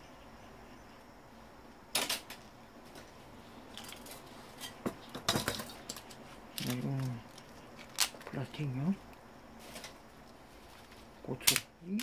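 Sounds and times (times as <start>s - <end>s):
small parts clicking and clinking: 1.9s - 2.4s.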